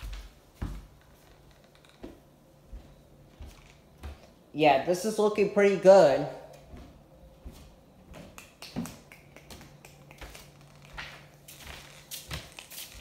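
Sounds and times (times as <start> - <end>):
footsteps on plywood floor: 0.0 - 4.4, 6.5 - 8.9, 9.5 - 13.0
faint low hum: 0.0 - 13.0.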